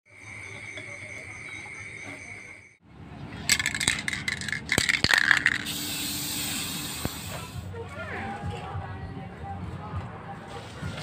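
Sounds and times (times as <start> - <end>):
crickets chirping: 0.1 - 2.8
spray-paint can rattling: 3.5 - 7.3.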